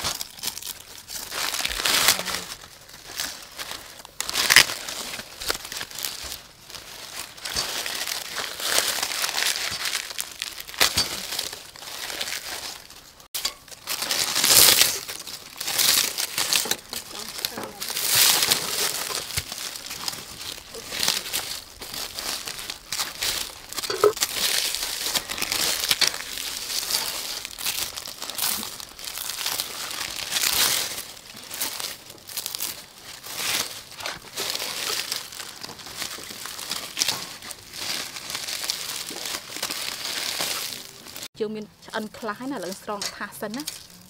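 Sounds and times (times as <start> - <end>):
dry corn husks crackling and rustling: 0.0 - 44.0.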